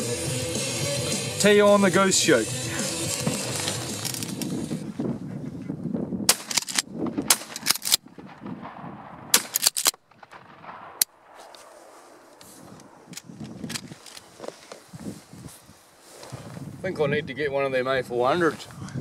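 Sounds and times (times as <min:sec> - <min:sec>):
shotguns firing: 0:02.8 - 0:04.4, 0:06.3 - 0:13.8.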